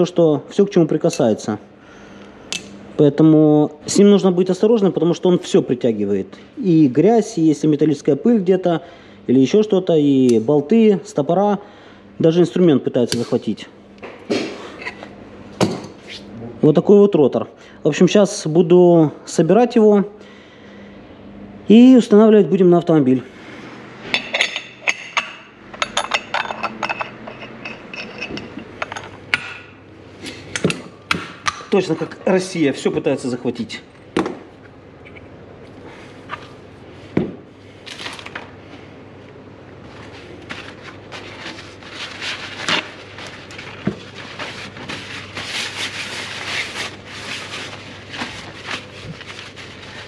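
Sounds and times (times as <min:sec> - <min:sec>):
paper towel rustling on metal: 0:39.8 - 0:50.0.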